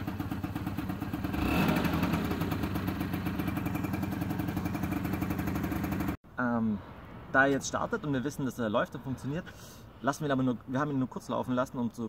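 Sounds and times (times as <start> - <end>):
scooter engine idling: 0.0 - 6.2.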